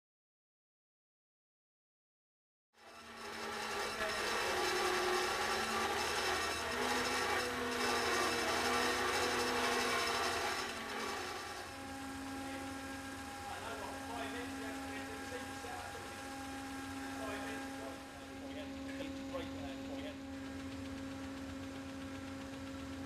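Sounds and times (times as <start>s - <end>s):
bandsaw grinding through pipe: 2.8s - 20.7s
bandsaw hum: 2.8s - 23.0s.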